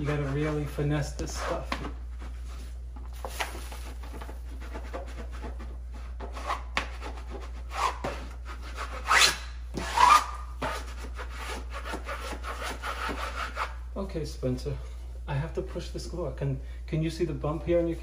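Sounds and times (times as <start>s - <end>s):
tool scraping wallpaper: 0.0s - 13.8s.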